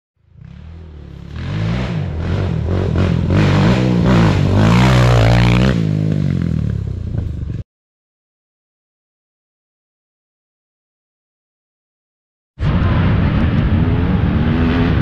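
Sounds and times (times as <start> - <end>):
quad engines accelerating: 0.2 - 7.6, 12.7 - 15.0.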